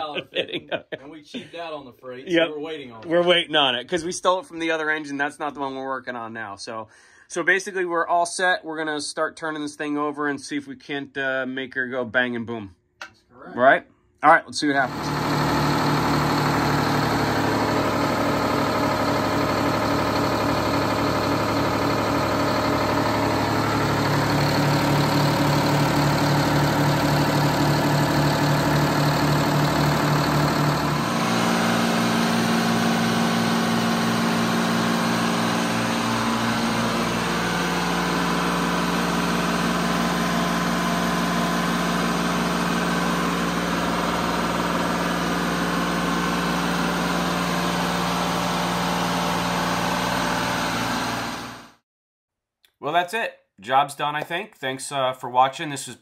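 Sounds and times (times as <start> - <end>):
diesel engine idling: 14.9 - 51.6.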